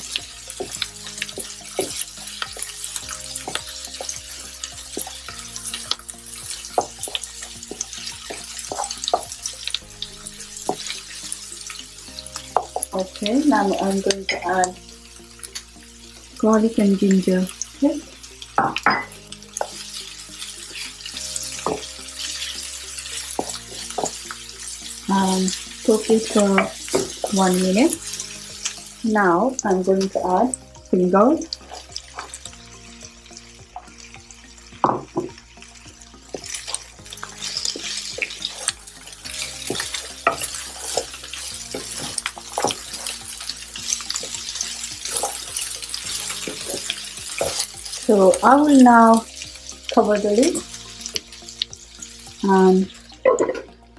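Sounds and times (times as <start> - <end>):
onions sizzling in oil: 0.0 - 53.9
spatula scraping a pan: 36.3 - 49.2.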